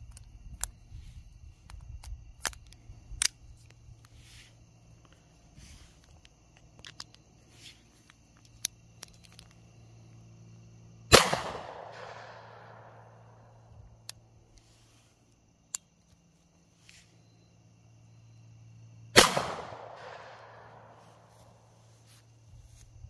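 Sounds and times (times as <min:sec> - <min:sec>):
gun handling clicks: 0:00.0 - 0:00.8, 0:01.6 - 0:04.2, 0:06.0 - 0:07.2, 0:08.0 - 0:09.6, 0:14.0 - 0:14.7, 0:15.7 - 0:16.2
gunshot crack ringing out: 0:11.1 - 0:12.6, 0:19.2 - 0:20.6.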